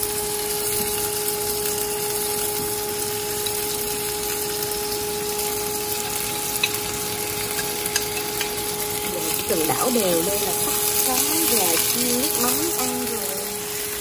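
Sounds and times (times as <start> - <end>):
kitchen appliance humming: 0.0 - 14.0
chopsticks ticking against bowl: 6.6 - 6.9, 7.5 - 8.6.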